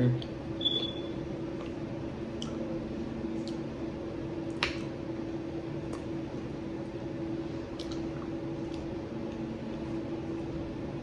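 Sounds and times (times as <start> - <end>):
steady low hum: 0.0 - 11.0
chewing: 3.4 - 3.7, 7.6 - 10.0.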